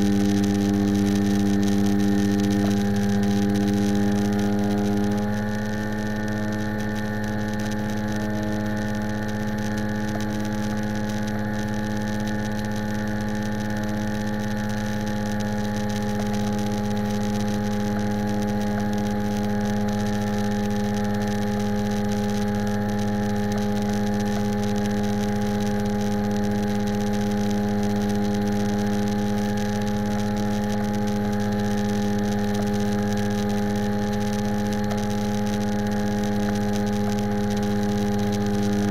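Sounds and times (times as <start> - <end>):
propeller airplane engine droning: 0.0 - 38.9.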